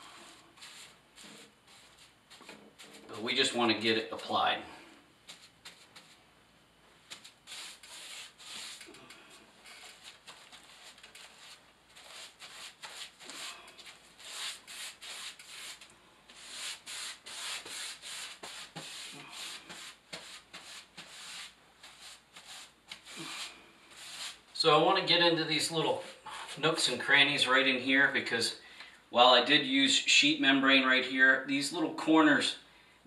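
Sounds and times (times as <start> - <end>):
paintbrush scrubbing on cement board: 0.0 - 3.3, 5.2 - 6.2, 7.1 - 9.2, 9.8 - 24.4.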